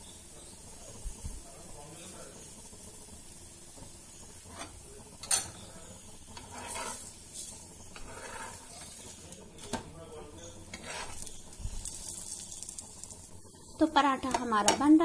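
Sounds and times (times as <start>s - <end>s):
flatbread sizzling in fat: 0.0s - 15.0s
metal spatula scraping a griddle: 4.4s - 5.6s, 6.3s - 9.8s, 10.4s - 12.4s.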